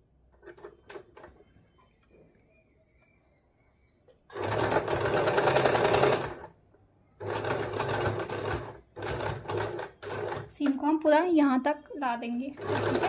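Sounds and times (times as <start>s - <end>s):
sewing machine stitching: 4.3s - 6.6s, 7.2s - 10.9s, 12.4s - 13.0s.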